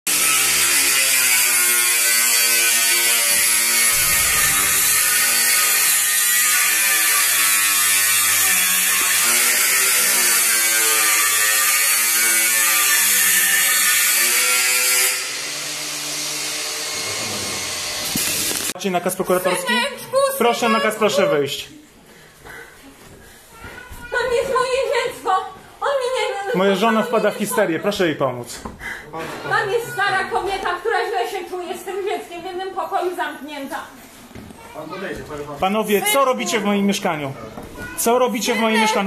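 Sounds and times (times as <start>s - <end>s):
angle grinder cutting metal: 0.1s - 18.8s.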